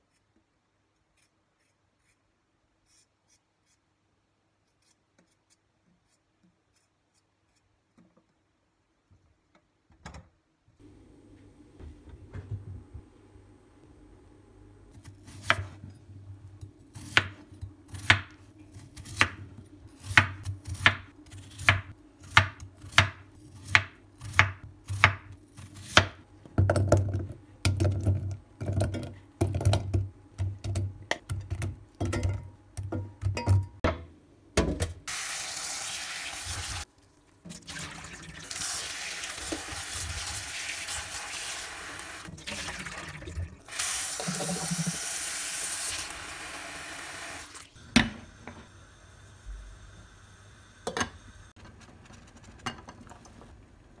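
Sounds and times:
tap water running into pot: 0:35.1 - 0:47.8.

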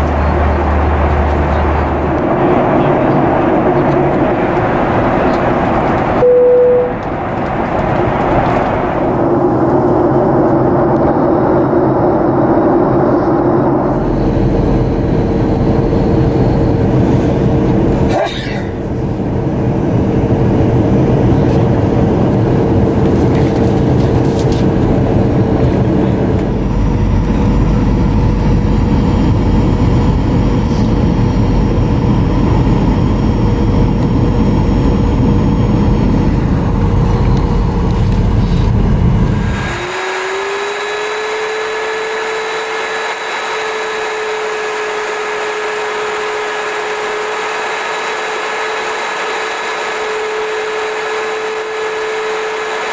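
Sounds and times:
airplane cabin rumble: 0:00.0 - 0:40.0
engine whine: 0:00.0 - 0:52.9.

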